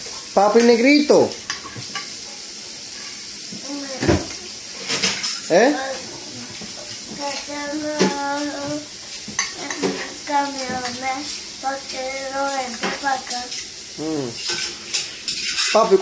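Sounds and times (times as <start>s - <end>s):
boy making wordless sounds: 5.5s - 6.5s, 7.1s - 8.9s, 9.6s - 14.4s.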